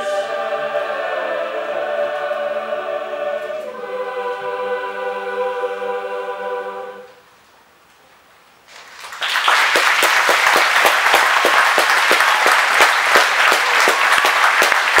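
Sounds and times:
audience applauding: 8.7 - 15.0
sharp individual claps: 8.7 - 15.0.

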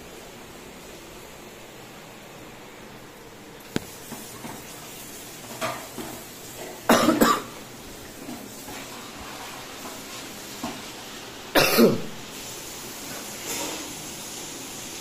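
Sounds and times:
person coughing: 6.9 - 7.5, 11.6 - 12.1.

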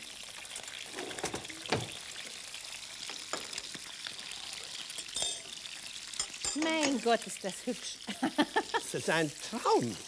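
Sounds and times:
food sizzling in a pot: 0.0 - 10.0.

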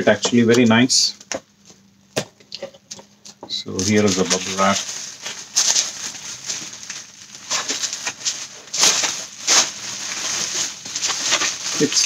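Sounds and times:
bubble wrap crinkling: 3.5 - 12.0.

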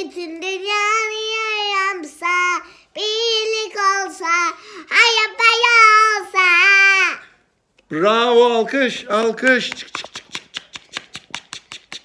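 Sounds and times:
short breaths: 2.6 - 3.0, 4.5 - 4.9.

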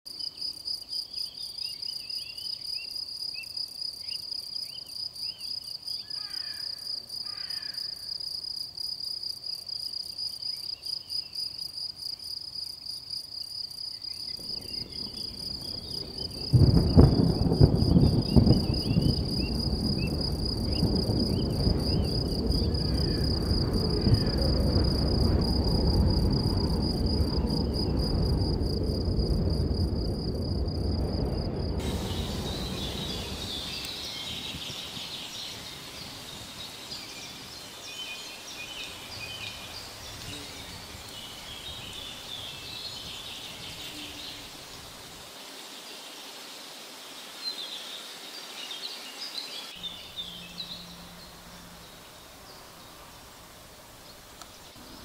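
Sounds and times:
insects trilling: 0.1 - 55.0
loud low rushing noise: 18.6 - 37.8
bird chirps: 31.9 - 44.5, 48.8 - 53.3.

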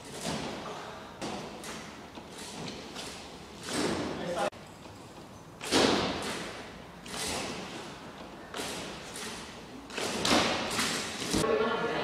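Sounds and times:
slackline webbing thumping: 1.2 - 4.2, 5.2 - 11.4.

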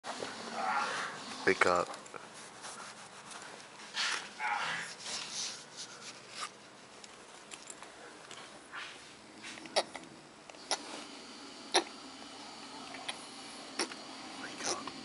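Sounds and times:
sleepy groan: 0.5 - 1.2.

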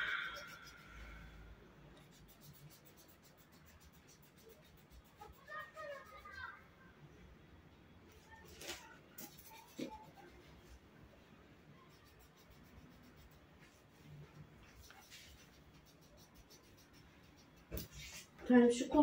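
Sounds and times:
pencils scratching on paper: 0.0 - 1.3, 1.9 - 6.6, 8.2 - 10.8, 11.7 - 19.0.

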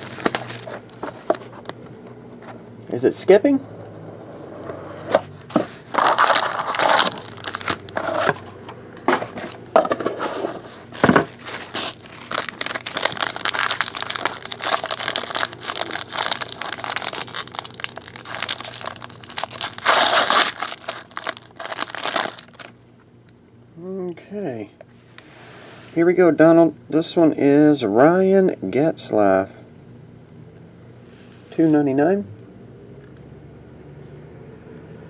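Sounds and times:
foil wrapping crinkling and tearing: 0.0 - 0.8, 5.9 - 8.0, 11.0 - 22.7.

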